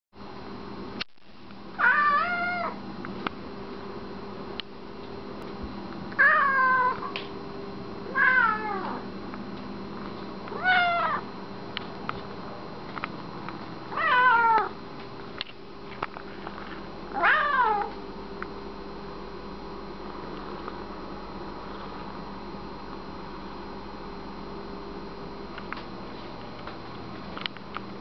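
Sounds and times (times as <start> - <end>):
cat meowing: 1.8 - 2.8, 6.2 - 7.1, 8.1 - 9.0, 10.5 - 11.2, 14.0 - 14.7, 17.2 - 17.9.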